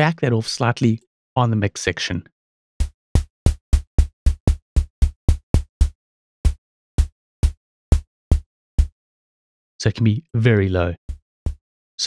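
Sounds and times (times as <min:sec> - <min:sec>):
synthesized kick drum thuds: 0:02.8 - 0:09.0, 0:11.0 - 0:11.6.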